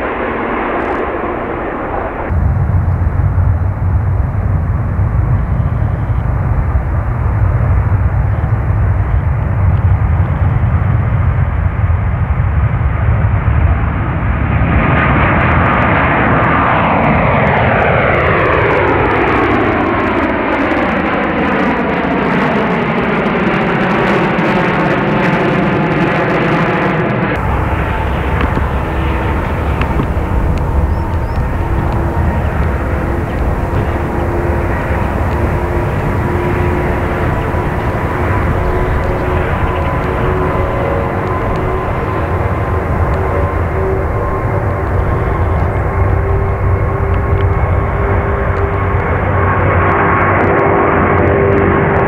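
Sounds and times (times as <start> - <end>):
jet whine sliding down in pitch: 0.0 - 9.6, 13.9 - 52.0
jet engine rumble: 0.0 - 52.0.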